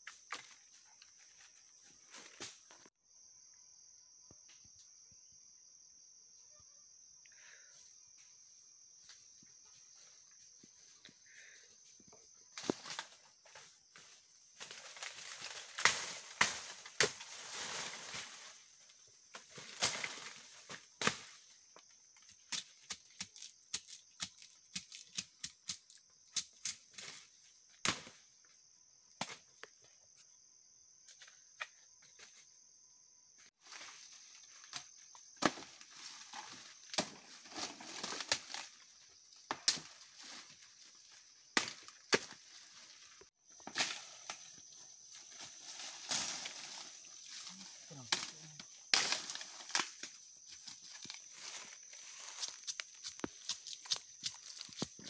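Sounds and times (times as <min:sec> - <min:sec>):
high insect drone: 0:00.0 - 0:55.0
bamboo leaves and twigs crackling: 0:12.5 - 0:28.2, 0:33.6 - 0:55.0.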